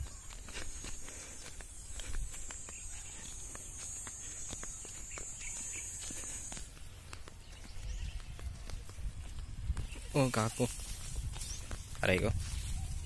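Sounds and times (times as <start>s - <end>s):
footsteps crunching on dry soil: 0.0s - 13.0s
wind rumble on microphone: 7.4s - 13.0s
high-pitched hiss: 9.9s - 13.0s.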